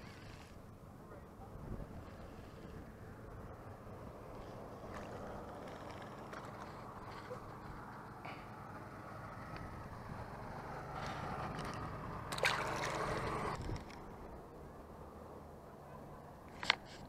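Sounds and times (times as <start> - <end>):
fishing reel click: 0.0 - 0.6
reel spool whirring: 0.0 - 14.5
steady wind: 0.0 - 17.0
lapping water: 12.3 - 13.4.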